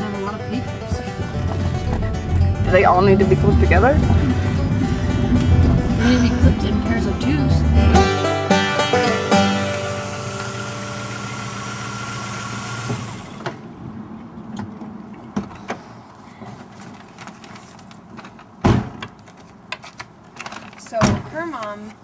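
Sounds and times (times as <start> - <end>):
background music chord: 0.0 - 11.2
car door thud: 18.6 - 19.0.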